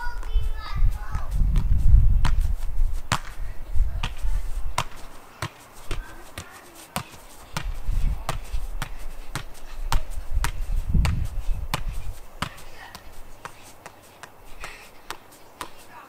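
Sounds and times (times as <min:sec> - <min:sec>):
soccer ball thuds: 0:00.0 - 0:16.0.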